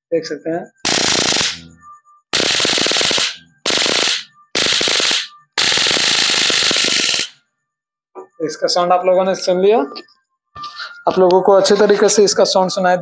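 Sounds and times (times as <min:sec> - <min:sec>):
electric spark crackling: 0:00.9 - 0:01.6, 0:02.4 - 0:07.4.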